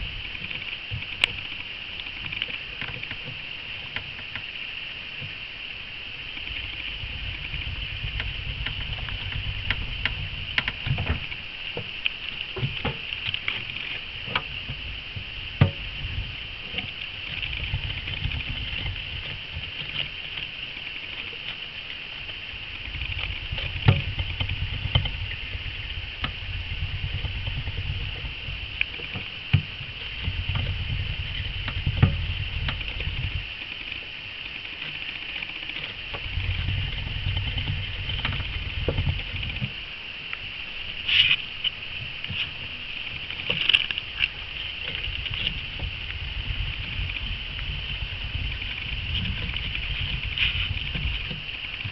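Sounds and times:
steady high hiss: 0:00.0 - 0:51.9
low rumble: 0:05.8 - 0:20.0, 0:22.3 - 0:34.0, 0:36.1 - 0:51.9
hamster scratching and clicking: 0:15.6 - 0:21.6, 0:42.3 - 0:51.9.

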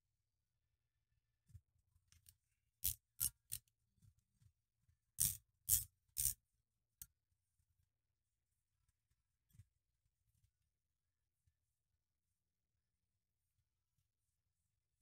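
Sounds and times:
metallic clicks and scrapes: 0:02.1 - 0:03.7, 0:05.2 - 0:06.4.

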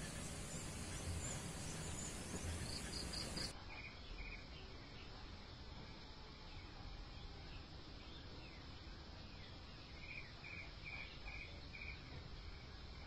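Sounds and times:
insects chirping: 0:00.0 - 0:04.4.

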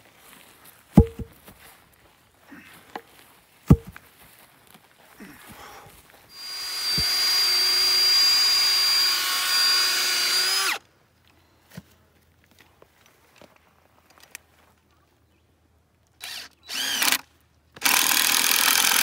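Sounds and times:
dull knocks: 0:01.0 - 0:01.4, 0:03.7 - 0:04.0
cordless drill boring into log: 0:06.3 - 0:10.8, 0:16.2 - 0:19.0.

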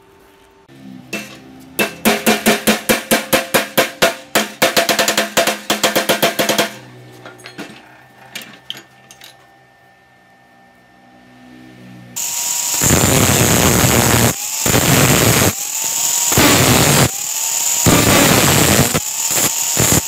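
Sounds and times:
hammer striking steel rod: 0:01.1 - 0:07.7.

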